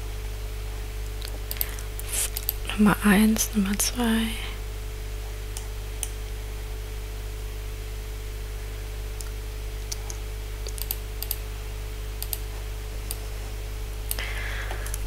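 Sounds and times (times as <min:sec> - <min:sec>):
steady low hum: 0:00.0 - 0:15.0
computer clicks: 0:09.2 - 0:11.4, 0:12.2 - 0:12.5.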